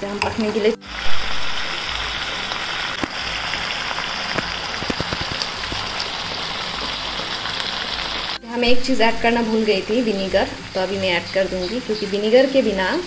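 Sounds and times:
food sizzling in a frying pan: 0:00.0 - 0:13.0
small pops: 0:04.3 - 0:06.1.

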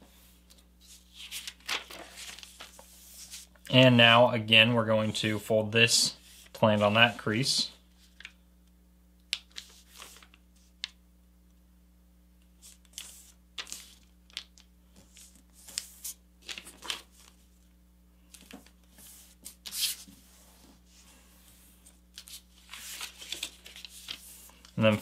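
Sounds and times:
paper rustling and creasing: 0:00.4 - 0:03.6, 0:09.3 - 0:10.9, 0:12.6 - 0:17.6, 0:18.2 - 0:25.0.

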